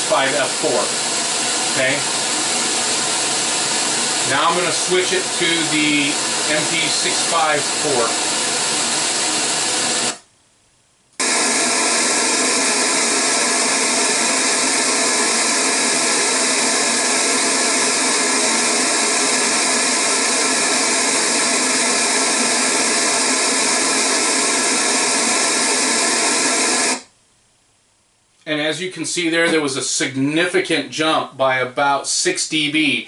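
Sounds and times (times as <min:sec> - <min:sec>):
loud pink noise hiss: 0:00.0 - 0:10.3, 0:11.2 - 0:27.2.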